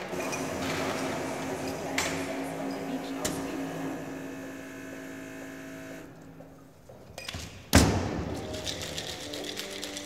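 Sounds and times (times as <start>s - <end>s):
steady hum: 0.0s - 6.5s
ice rattling in shaker: 8.4s - 10.0s.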